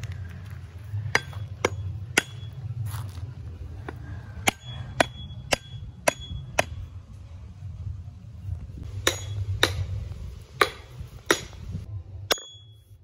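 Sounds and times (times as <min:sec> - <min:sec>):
hammer striking wooden stake: 0:01.1 - 0:02.6, 0:04.4 - 0:06.9, 0:08.8 - 0:12.9.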